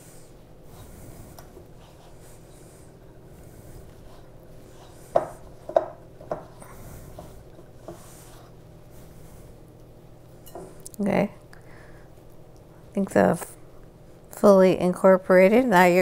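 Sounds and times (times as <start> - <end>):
hands kneading dough: 0.0 - 10.2.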